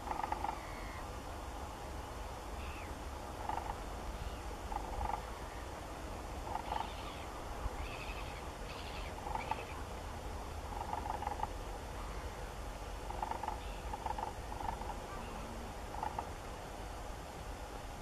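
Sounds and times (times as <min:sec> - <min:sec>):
waterbird flock calling: 0:06.5 - 0:09.8.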